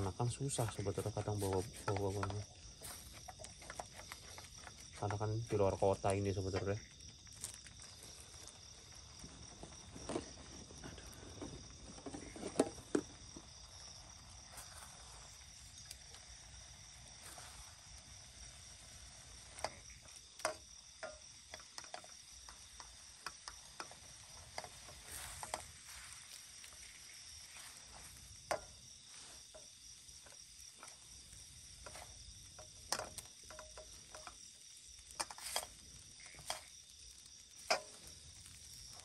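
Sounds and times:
crickets chirring: 0.0s - 39.0s
spatula scraping a wok: 23.5s - 29.7s, 31.8s - 34.3s, 35.1s - 36.7s.

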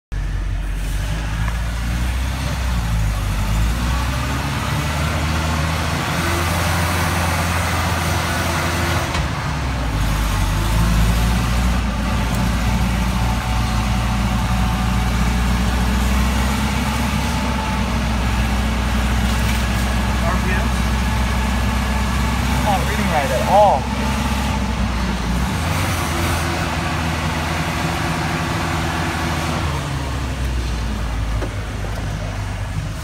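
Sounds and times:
pickup truck engine running: 9.5s - 33.0s.

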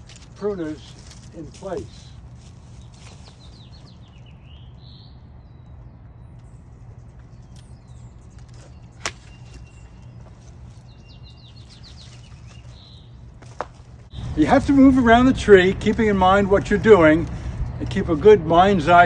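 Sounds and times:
low hum: 0.0s - 19.0s
small birds chirping: 0.0s - 19.0s
loppers snapping branch: 7.5s - 10.1s.

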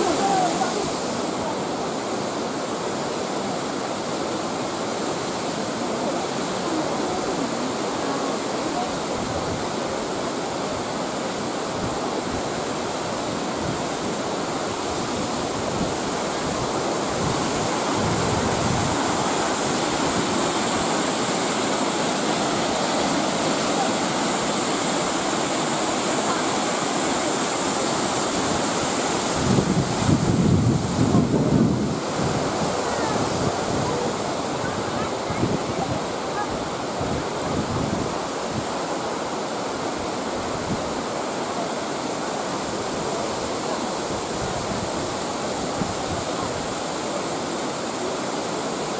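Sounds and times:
waterfall rushing: 0.0s - 48.9s
wind buffeting microphone: 14.7s - 25.0s, 28.2s - 38.7s.

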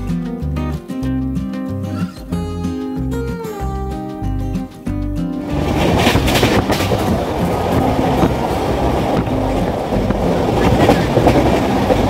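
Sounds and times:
train rumbling and rattling: 5.4s - 12.0s.

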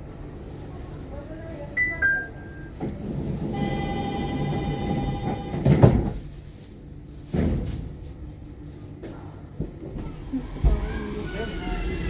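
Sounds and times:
sliding doors shutting with a knock: 4.2s - 6.2s.

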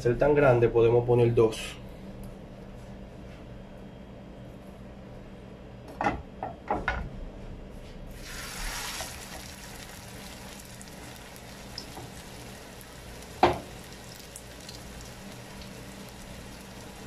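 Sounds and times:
meat patty sizzling in oil: 8.1s - 17.0s
knocks on frying pan: 13.4s - 13.7s.

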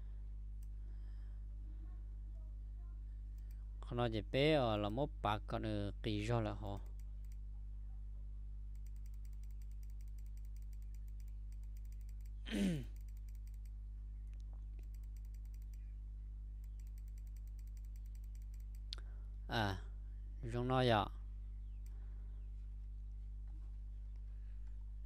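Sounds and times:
low electrical hum: 0.0s - 25.0s
faint computer clicks: 3.3s - 3.6s, 8.7s - 15.9s, 16.6s - 19.0s
person murmuring: 12.5s - 13.0s.

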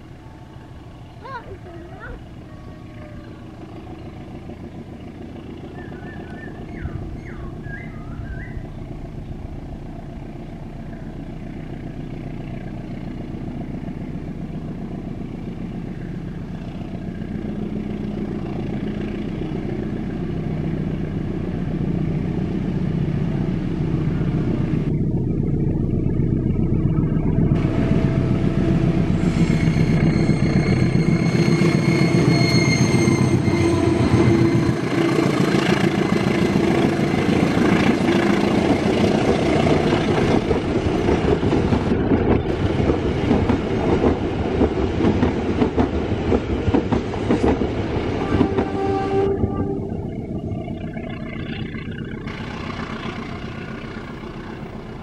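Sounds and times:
train engine and wheels rumbling: 0.0s - 55.0s.

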